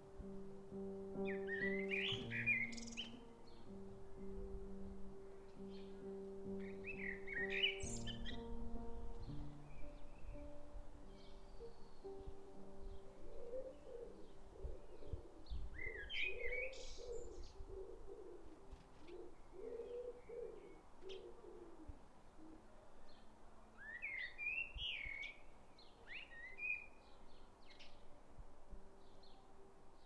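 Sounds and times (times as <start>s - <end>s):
blackbird singing: 0.7s - 17.7s, 23.1s - 28.1s.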